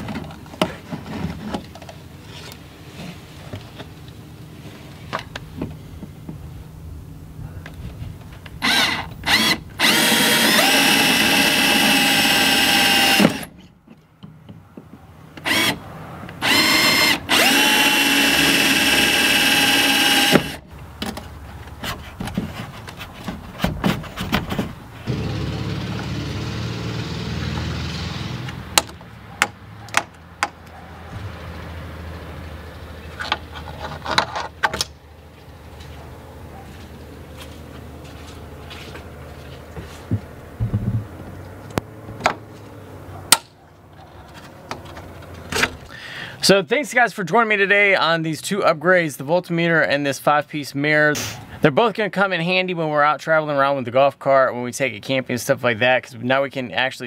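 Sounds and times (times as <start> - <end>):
cordless drill motor whining: 8.6 - 13.5, 15.4 - 15.8, 16.4 - 20.6.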